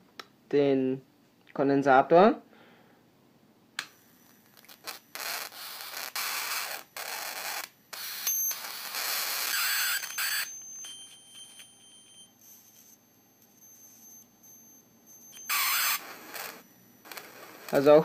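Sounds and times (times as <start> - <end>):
thin high whine: 3.9 - 18.0
electric arc sizzling: 4.0 - 10.5, 15.3 - 18.0.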